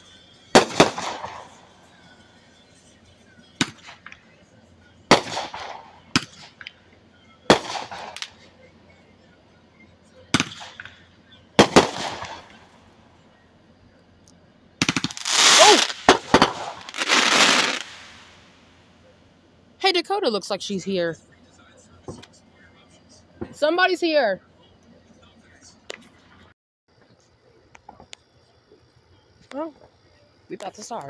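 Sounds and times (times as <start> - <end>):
fireworks banging: 0.0 - 2.2, 3.6 - 4.3, 5.1 - 8.5, 10.3 - 12.8, 14.8 - 18.6
fireworks crackling: 0.0 - 8.7, 10.3 - 13.0, 14.8 - 19.1.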